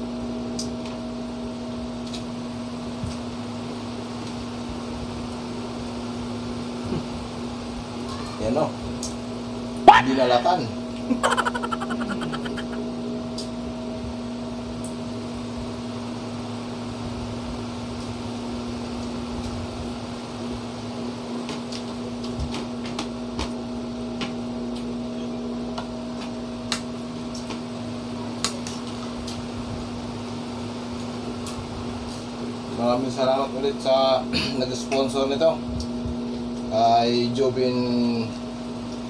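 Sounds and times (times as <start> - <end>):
electrical appliance hum: 0.0 - 39.0.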